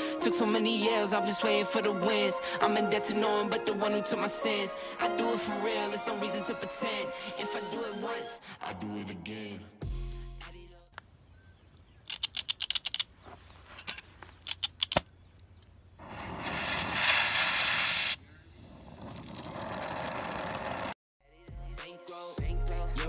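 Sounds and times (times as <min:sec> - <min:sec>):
metallic clicks and rattles: 0:11.7 - 0:15.8
torch gas hissing: 0:16.0 - 0:20.9.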